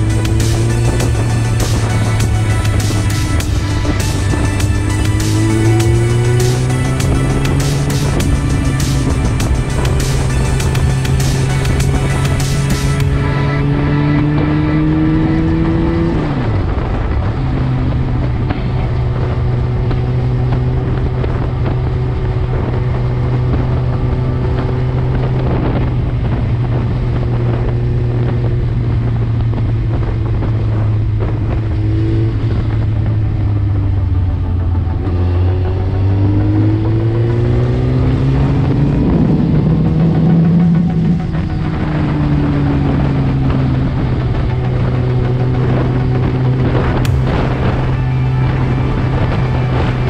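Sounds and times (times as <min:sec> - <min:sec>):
motorcycle engine: 0:00.0 - 0:50.0
wind rushing over microphone: 0:00.0 - 0:50.0.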